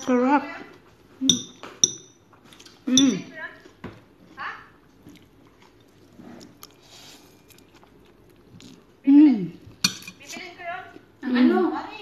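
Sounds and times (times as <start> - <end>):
person chewing noodles: 2.3 - 9.0.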